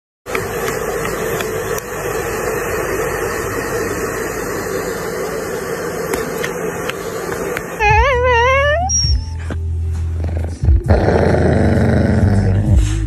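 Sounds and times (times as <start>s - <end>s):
small electric appliance motor hum: 0.3s - 9.4s.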